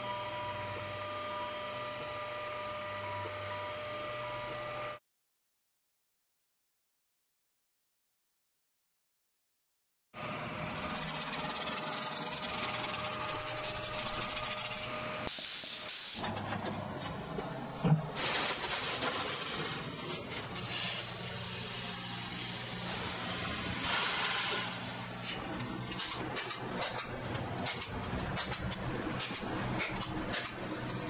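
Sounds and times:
sand poured into plastic bag: 0:18.2 - 0:21.0.

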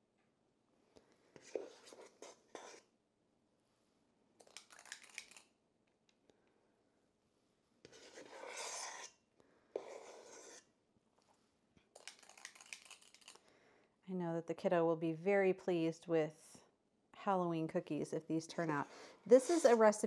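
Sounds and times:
metal scoop scraping bowl: 0:07.9 - 0:09.2, 0:09.8 - 0:10.7, 0:18.8 - 0:20.0.

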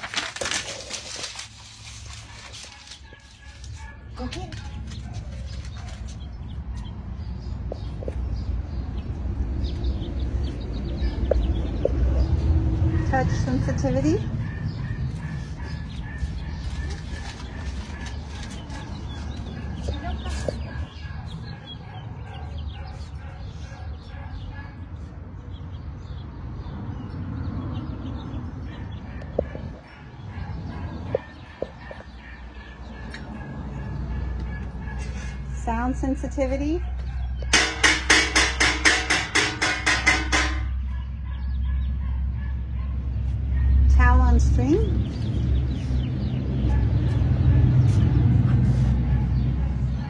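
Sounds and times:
animal chirps and clucks: 0:01.8 - 0:25.7, 0:28.0 - 0:35.8.

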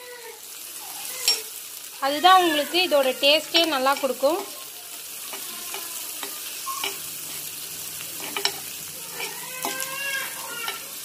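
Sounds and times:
onions sizzling in a pan: 0:00.0 - 0:11.0
metal spoon clinking and scraping: 0:01.0 - 0:01.5, 0:03.6 - 0:04.6, 0:05.2 - 0:11.0.

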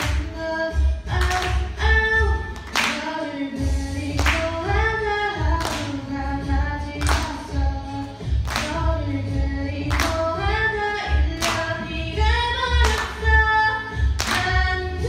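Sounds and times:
backing track: 0:00.0 - 0:15.0
girl singing into microphone: 0:00.0 - 0:15.0
low bass beat: 0:03.6 - 0:15.0.

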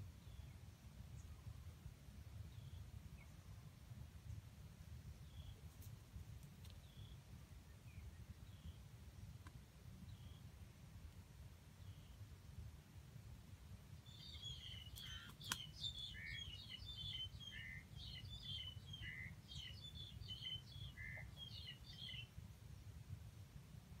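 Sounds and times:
small bird singing: 0:05.2 - 0:05.7, 0:06.6 - 0:08.9, 0:14.0 - 0:22.3.

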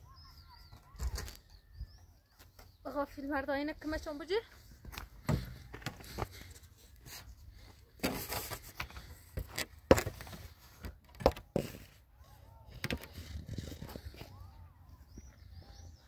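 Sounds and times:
scraping rustle: 0:08.0 - 0:10.8.

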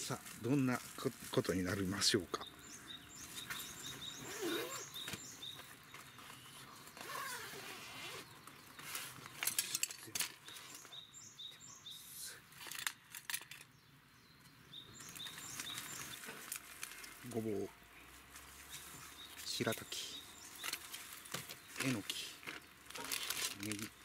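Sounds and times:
bird chirping: 0:01.5 - 0:24.0
fabric case being unzipped: 0:04.3 - 0:05.2, 0:07.0 - 0:08.3
metal tools clinking: 0:09.4 - 0:10.5.

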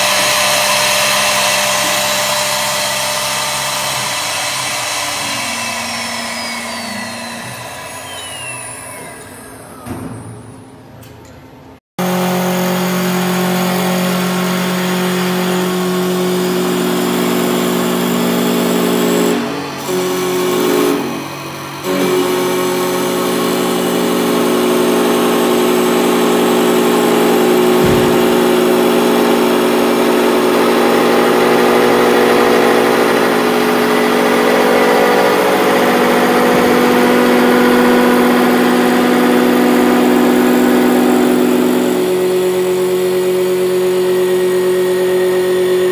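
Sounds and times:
cutter shaving wood: 0:00.0 - 0:09.4
wood lathe whining: 0:00.0 - 0:09.8.

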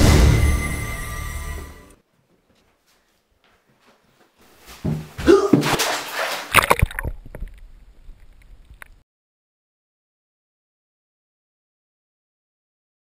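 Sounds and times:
water splashing and sloshing: 0:04.8 - 0:08.9.

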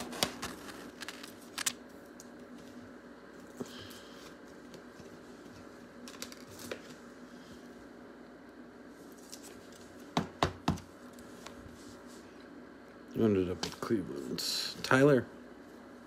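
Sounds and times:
plastic sleeve rustling: 0:00.0 - 0:02.6.

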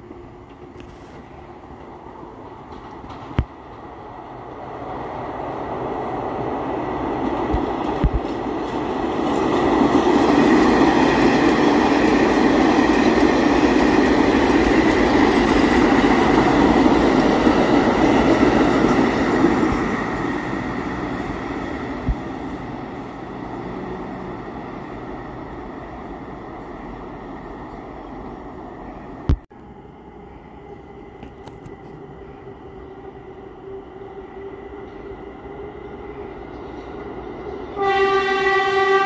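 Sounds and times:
train wheels rumbling on rails: 0:00.0 - 0:29.4.

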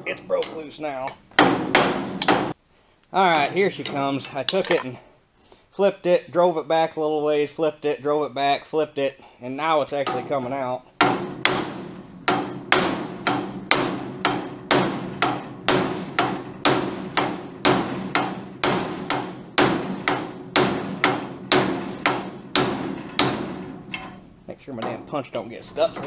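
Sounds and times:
hammer striking steel punch: 0:01.4 - 0:02.6, 0:11.0 - 0:26.0.

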